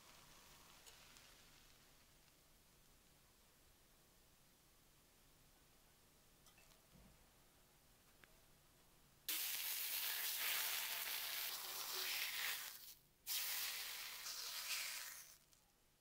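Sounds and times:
steady hissing: 9.3 - 15.5.

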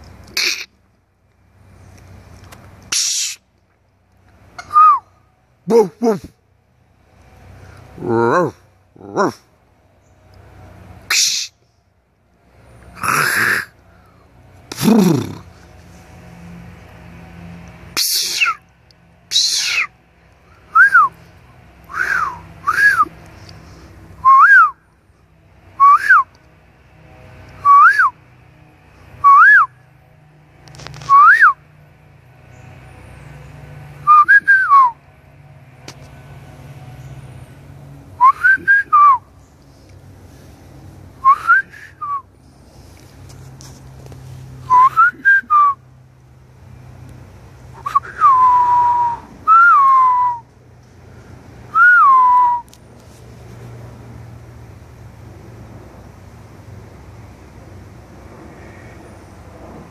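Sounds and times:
turkey whistled calls: 11.1 - 11.6, 18.0 - 18.6, 19.3 - 19.9.

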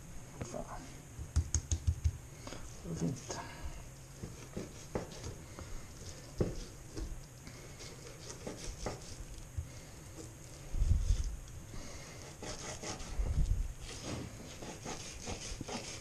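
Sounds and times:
knife scraping cutting board: 7.8 - 9.2.

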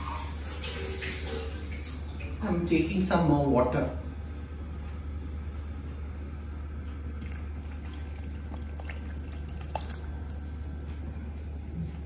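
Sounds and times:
steady low hum: 0.4 - 12.0
water pouring into liquid: 7.2 - 10.7.

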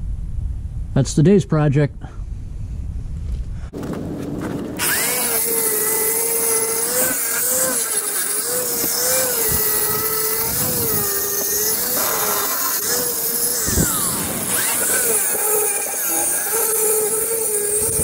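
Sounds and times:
angle grinder grinding metal: 4.8 - 18.0.

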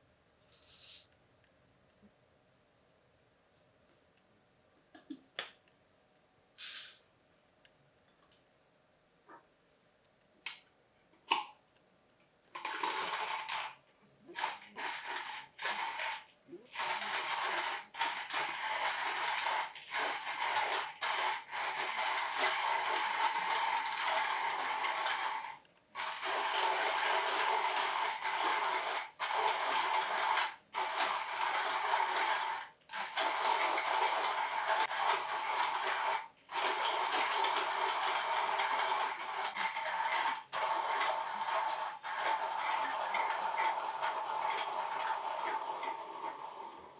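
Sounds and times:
hand grinder crushing coffee beans: 12.6 - 46.9.

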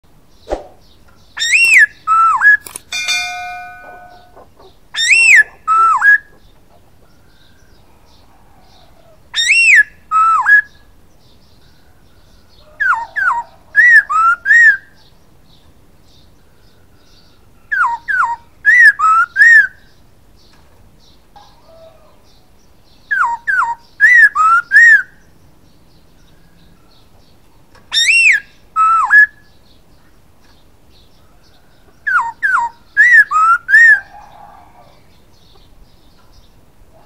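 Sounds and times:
caged bird whistling: 1.4 - 2.7, 3.3 - 6.3, 9.4 - 10.8, 12.8 - 15.0, 17.7 - 19.9, 23.1 - 25.2, 27.9 - 29.5, 32.1 - 34.5
steady piping tones: 2.9 - 4.6.

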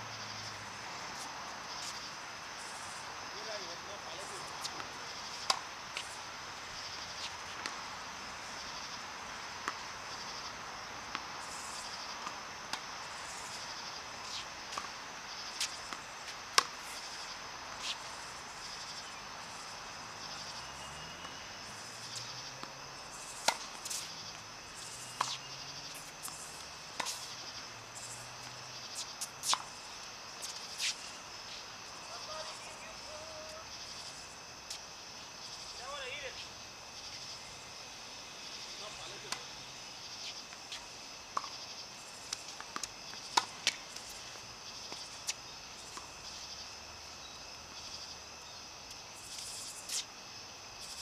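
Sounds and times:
tennis balls hit with rackets: 4.4 - 6.1, 23.4 - 24.3, 28.9 - 29.8, 39.1 - 39.5, 40.5 - 44.2.

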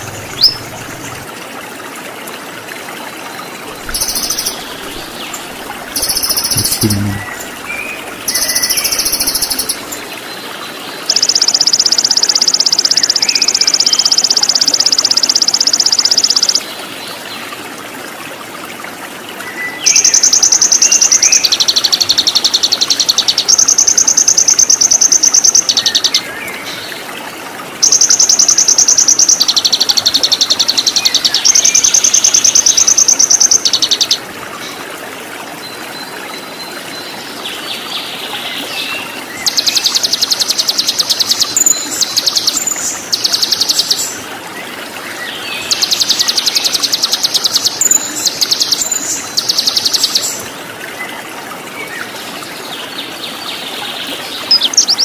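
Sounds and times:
songbird trilling: 0.0 - 1.2, 3.8 - 9.9, 54.5 - 55.0
running water: 0.0 - 55.0.

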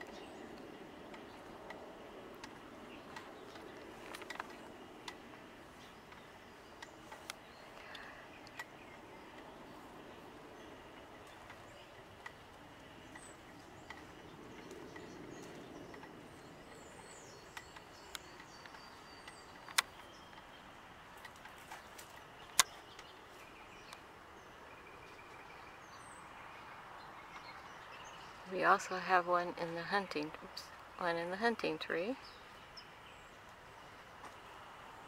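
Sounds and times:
faint bird chirps and calls: 0.0 - 34.7
sharp clicks: 6.1 - 9.5, 11.2 - 23.2.

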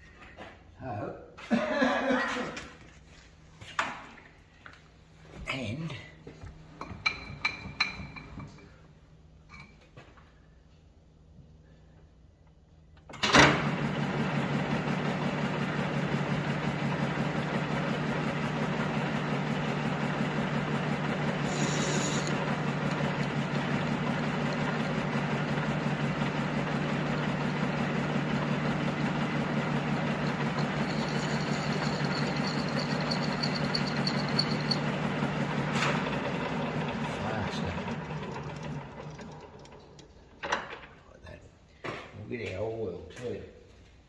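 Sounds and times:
lathe starting clunk: 13.1 - 18.8, 19.4 - 41.0
lathe motor running: 13.6 - 40.0.

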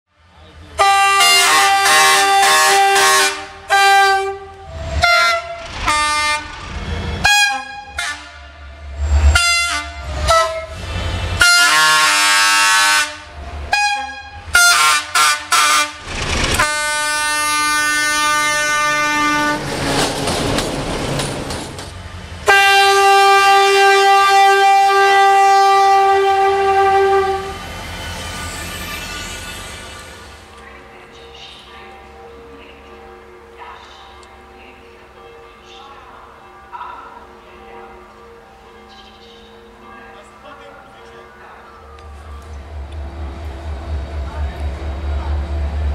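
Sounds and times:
diesel locomotive engine rumble: 0.1 - 45.9
locomotive horn blasts: 0.8 - 6.6, 7.2 - 10.8, 11.4 - 16.0, 16.6 - 19.7, 22.4 - 27.7.

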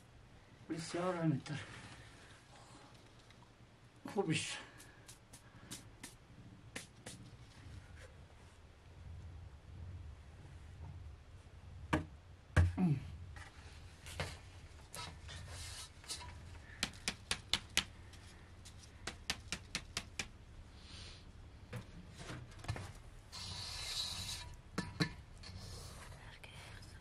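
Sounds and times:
flour hissing through sieve: 23.3 - 24.6.

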